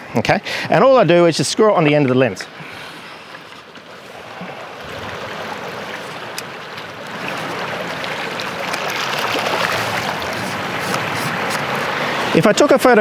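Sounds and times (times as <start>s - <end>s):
sea water washing around rocks: 3.1s - 12.4s.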